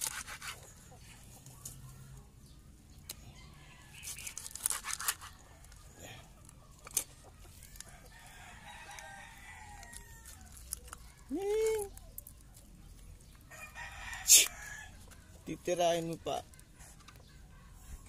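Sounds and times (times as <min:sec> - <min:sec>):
knife scraping fish scales: 0:00.0 - 0:00.7, 0:04.0 - 0:05.4.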